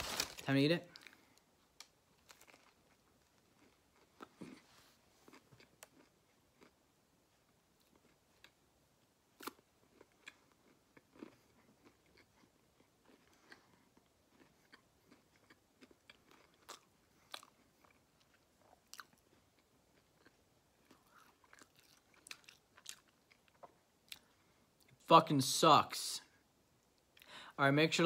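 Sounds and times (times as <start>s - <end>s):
person chewing: 1.8s - 6.8s, 9.4s - 24.9s.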